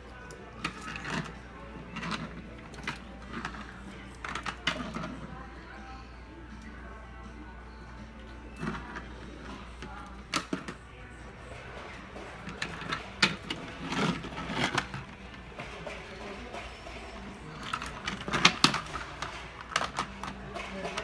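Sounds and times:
toy trains clacking on wooden track: 11.6s - 21.0s.

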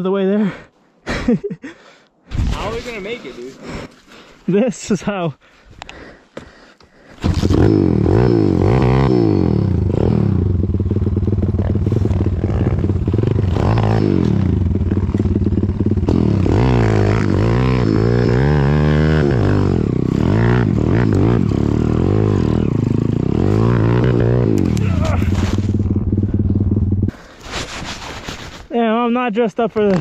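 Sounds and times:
motorbike engine revving: 7.2s - 27.2s.

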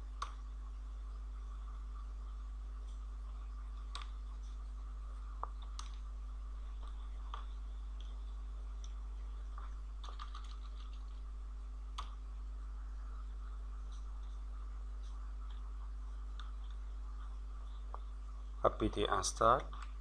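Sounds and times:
low electrical hum: 0.0s - 20.0s
keyboard keystrokes: 10.0s - 11.2s.

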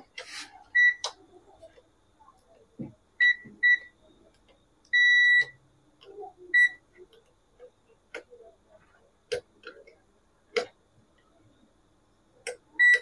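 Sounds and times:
multimeter beeping: 0.7s - 1.2s, 3.2s - 4.0s, 4.9s - 5.6s, 6.5s - 6.8s, 12.8s - 13.0s.

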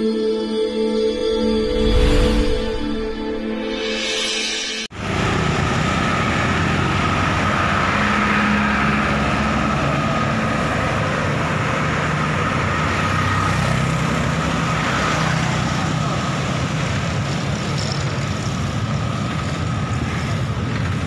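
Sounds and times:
continuous traffic noise: 4.8s - 21.0s.

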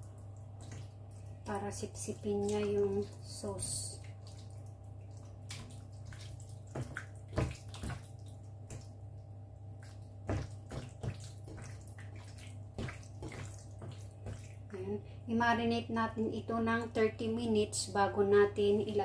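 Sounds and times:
wet squelching of chicken in marinade: 0.0s - 15.2s.

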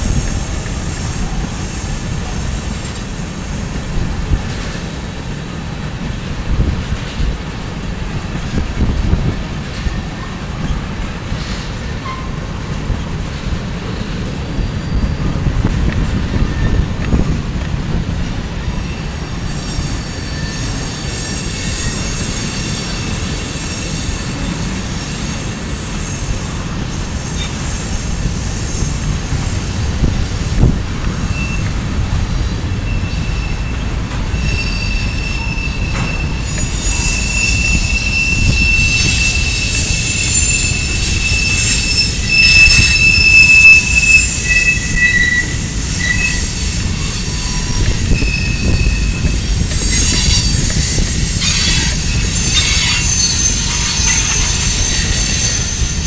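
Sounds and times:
train wheels rumbling on rail: 0.0s - 56.0s
high wheel squeal: 18.8s - 29.4s, 31.3s - 31.7s, 32.6s - 56.0s.

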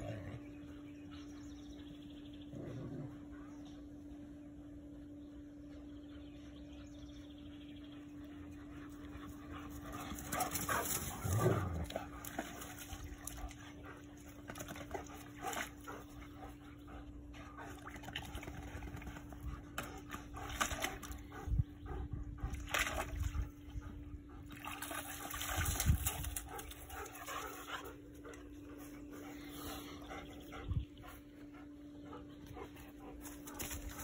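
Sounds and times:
dogs splashing in water: 11.8s - 16.3s, 17.7s - 21.3s, 22.5s - 23.8s, 24.4s - 28.1s.

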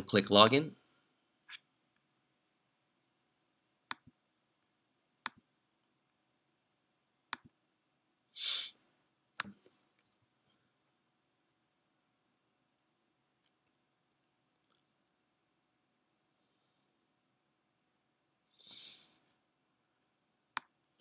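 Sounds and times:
short hiss: 8.4s - 8.8s.

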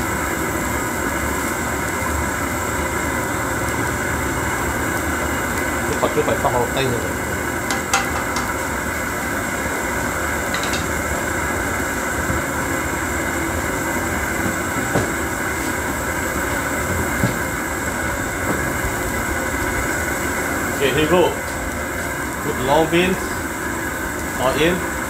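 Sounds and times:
soup simmering: 0.0s - 20.8s
camp stove burner roaring: 0.0s - 25.0s.

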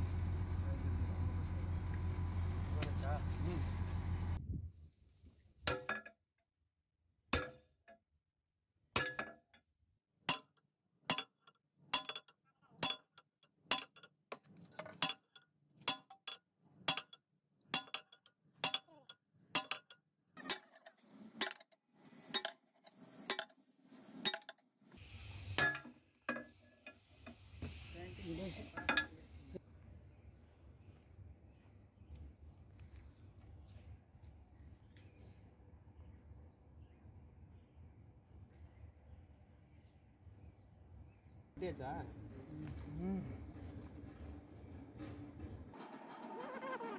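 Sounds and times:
low rumble: 0.0s - 4.9s
hiss: 23.9s - 25.8s, 27.0s - 28.8s.

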